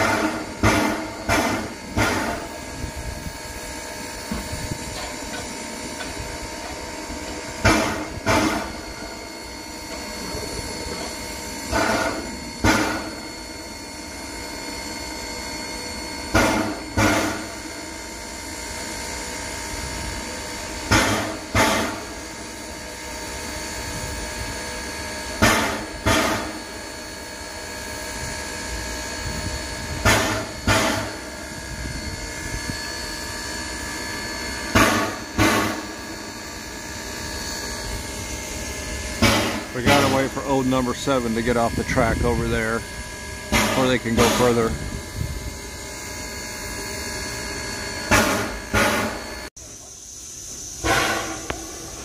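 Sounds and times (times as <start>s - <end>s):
steam locomotive exhaust puffs: 0.0s - 52.0s
steam hiss: 48.2s - 52.0s.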